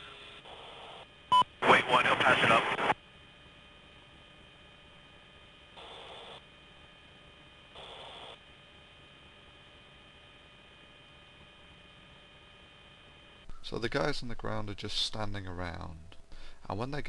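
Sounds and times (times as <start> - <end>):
radio hum and hiss: 0.0 - 17.0
radio static bursts: 1.6 - 3.0.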